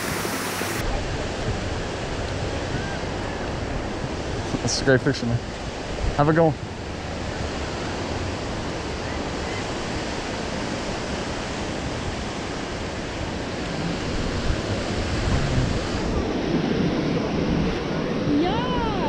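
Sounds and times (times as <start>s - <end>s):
ocean surf washing: 0.0s - 19.0s
wind noise on microphone: 5.4s - 19.0s.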